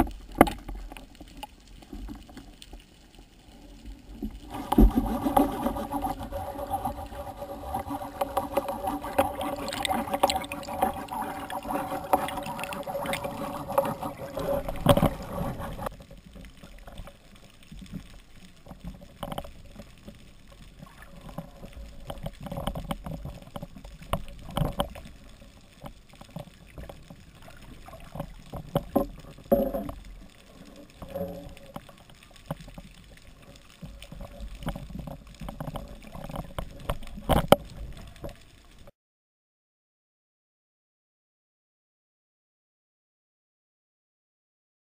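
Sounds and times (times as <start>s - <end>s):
muffled underwater knocks and scrapes: 4.2s - 38.5s.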